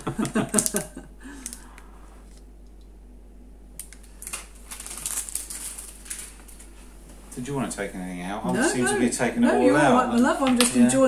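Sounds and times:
plastic bag crinkling: 0:03.8 - 0:06.8.

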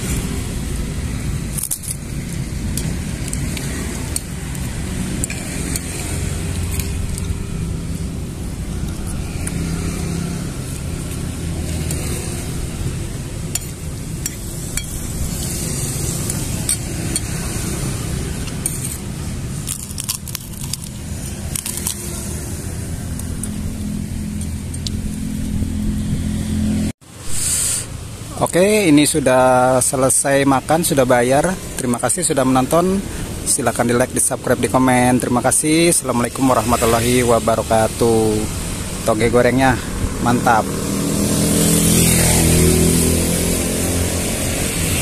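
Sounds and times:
road traffic rumble: 0:00.0 - 0:45.0
cutlery scraping a ceramic plate: 0:18.4 - 0:20.9.

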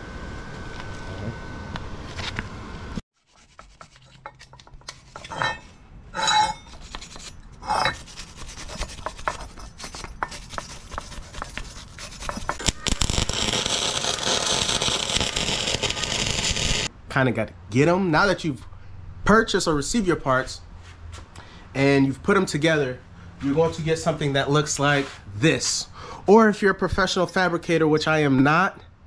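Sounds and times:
metal scraping on pipe: 0:03.3 - 0:16.9
welding crackling hiss: 0:12.5 - 0:16.9.

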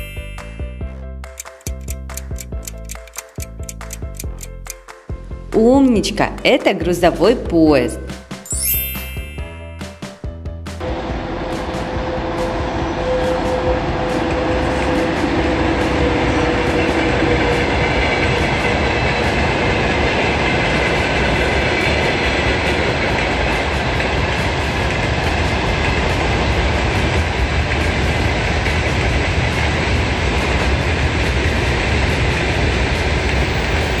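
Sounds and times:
train wheels rumbling on rails: 0:10.8 - 0:34.0.

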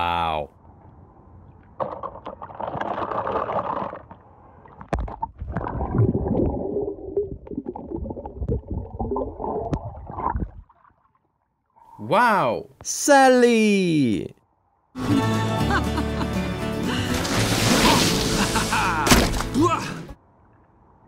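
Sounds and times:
water splashing and sloshing: 0:01.4 - 0:11.8, 0:17.0 - 0:21.0.

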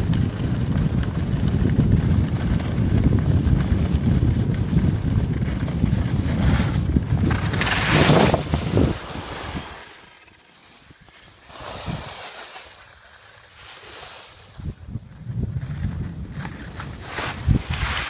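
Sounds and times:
wind buffeting microphone: 0:00.0 - 0:09.8, 0:11.5 - 0:12.2, 0:14.4 - 0:18.0.

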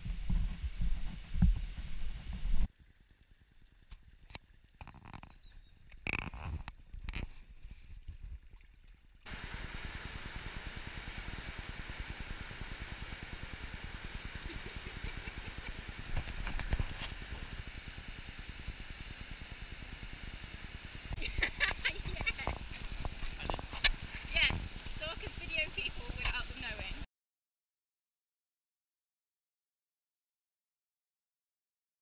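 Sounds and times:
brook trickling: 0:02.7 - 0:26.9
river water rushing: 0:09.3 - 0:26.2.

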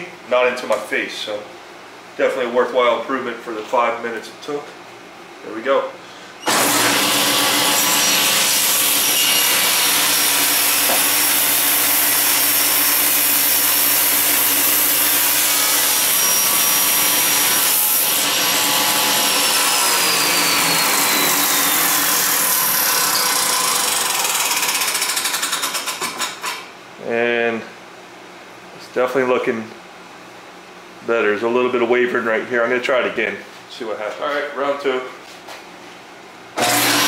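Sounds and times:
saw whine winding down: 0:06.4 - 0:08.3, 0:18.3 - 0:25.1
table saw cutting metal: 0:06.4 - 0:26.6, 0:36.6 - 0:37.0.

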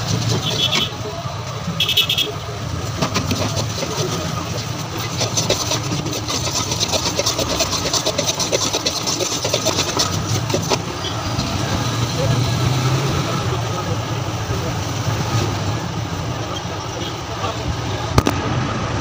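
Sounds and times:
stirring rod scraping iron pan: 0:00.0 - 0:01.1, 0:02.5 - 0:11.8.

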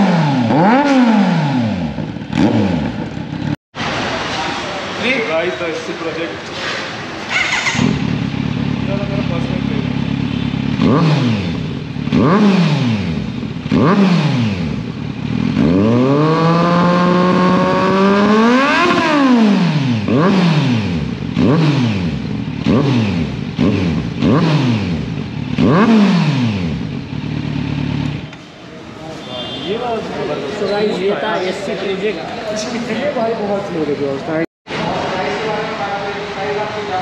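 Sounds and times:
motorcycle engine revving: 0:00.0 - 0:04.1, 0:06.5 - 0:28.6.

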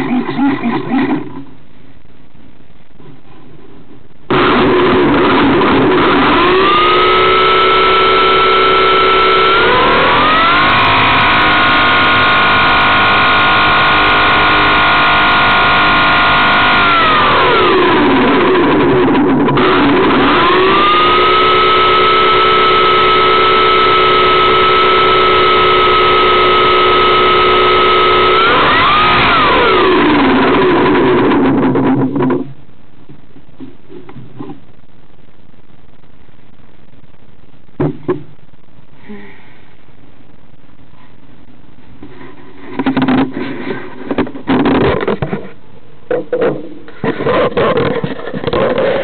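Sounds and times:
electric motor and propeller whine: 0:04.3 - 0:31.4.

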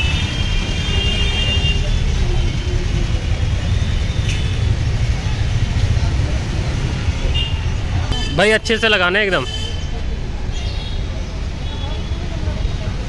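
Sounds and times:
vehicle horn: 0:00.0 - 0:01.9, 0:07.3 - 0:09.9
road traffic rumble: 0:00.0 - 0:13.0.

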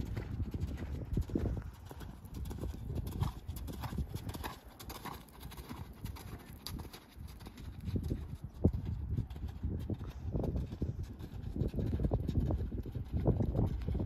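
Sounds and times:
horse hooves thudding on sand: 0:00.0 - 0:14.0.

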